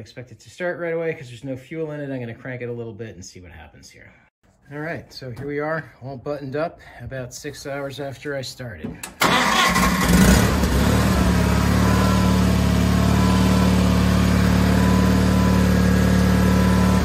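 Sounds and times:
tractor engine idling: 9.0 - 17.0.

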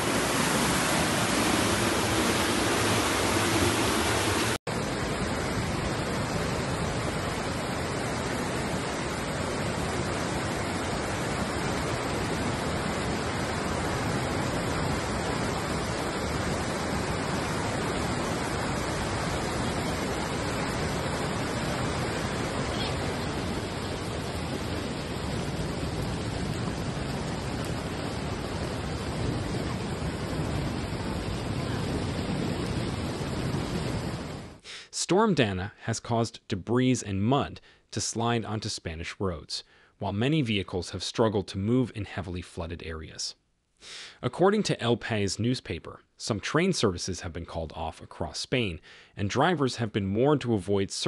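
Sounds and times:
floodwater rushing: 0.0 - 34.6.

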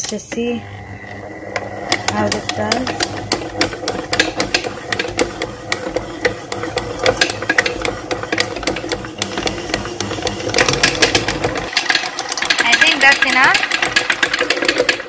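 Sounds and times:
dough hook clicking and knocking: 0.0 - 15.0
stand mixer motor hum: 0.4 - 15.0.

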